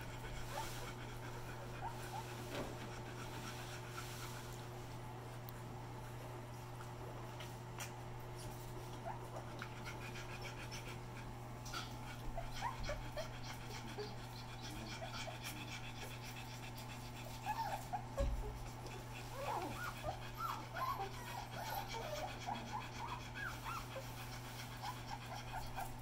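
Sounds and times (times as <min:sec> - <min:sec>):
dog panting: 0:00.0 - 0:26.0
puppies squeaking: 0:19.3 - 0:24.0.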